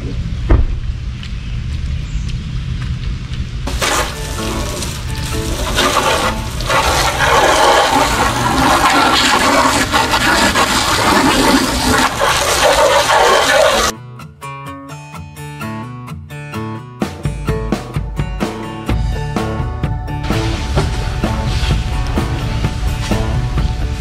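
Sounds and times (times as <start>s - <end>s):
water spraying onto a car: 3.7s - 13.9s.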